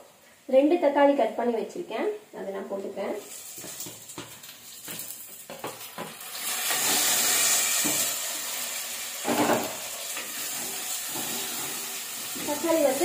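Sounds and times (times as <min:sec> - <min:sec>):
tomatoes sizzling in hot oil: 0:02.7 - 0:13.0.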